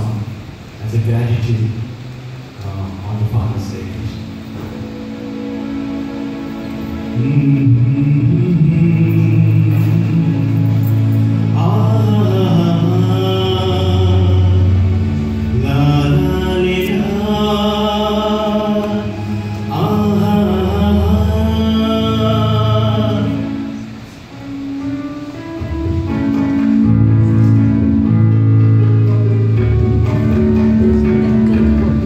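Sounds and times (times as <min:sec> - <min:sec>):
electronic keyboard: 0:02.6 - 0:32.0
man singing devotional song: 0:07.2 - 0:14.9, 0:15.5 - 0:23.7.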